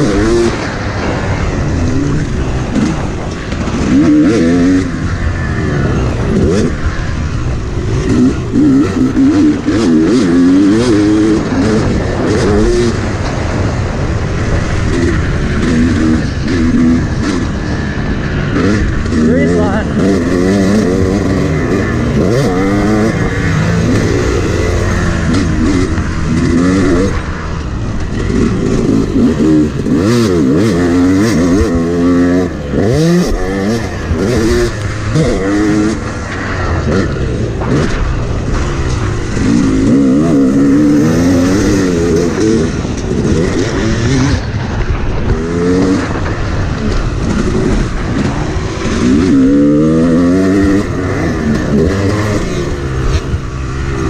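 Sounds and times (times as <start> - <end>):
motocross bike engine revving: 0.0 - 54.0
wind rushing over microphone: 0.0 - 54.0.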